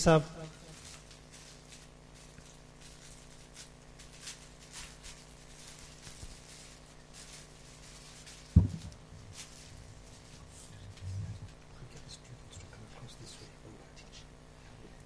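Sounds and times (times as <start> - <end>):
steady hum: 0.0 - 15.0
faint clicks and rustles: 0.6 - 12.8
sharp low thump: 8.6 - 8.9.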